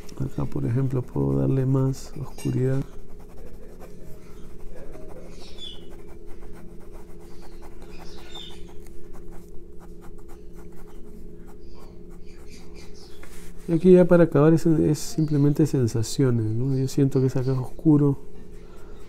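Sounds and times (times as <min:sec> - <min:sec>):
steady low hum: 0:00.0 - 0:19.0
pencil scratching on paper: 0:01.1 - 0:13.8.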